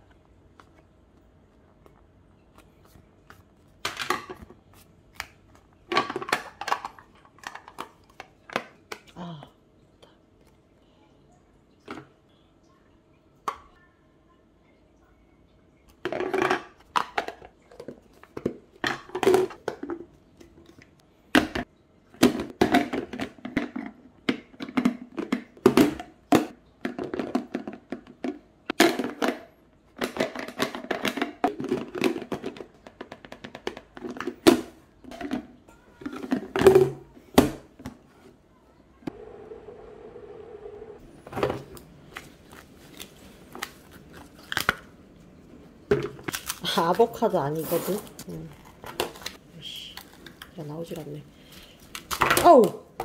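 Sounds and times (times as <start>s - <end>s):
plastic containers clacking: 5.2s - 9.2s, 16.0s - 38.1s, 45.6s - 47.3s, 47.9s - 49.4s.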